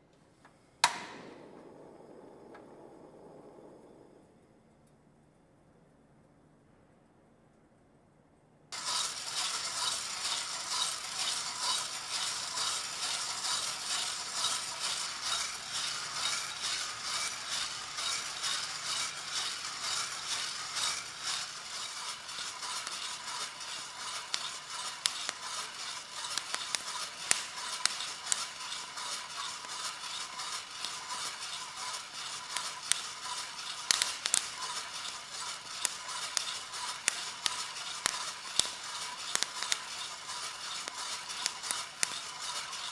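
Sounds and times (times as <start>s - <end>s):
gas flame hiss: 8.7s - 42.9s
coffee beans rattling in drum roaster: 8.8s - 42.9s
sharp clicks: 33.8s - 42.8s.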